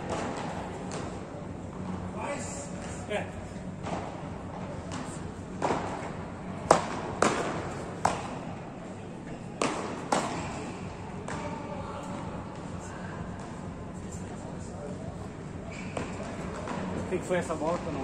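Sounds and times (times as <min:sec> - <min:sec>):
paddles striking ball: 0:04.8 - 0:08.6, 0:09.6 - 0:10.6.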